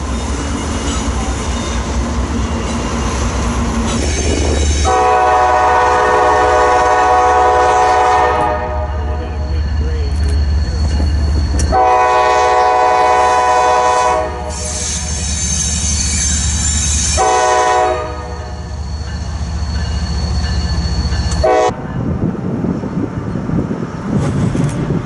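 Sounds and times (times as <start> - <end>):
locomotive engine rumble: 0.0 - 25.0
train horn blasts: 4.8 - 9.3, 11.6 - 14.8, 17.1 - 18.7, 21.4 - 21.8
wheels squealing on track: 9.2 - 11.8, 14.5 - 17.2.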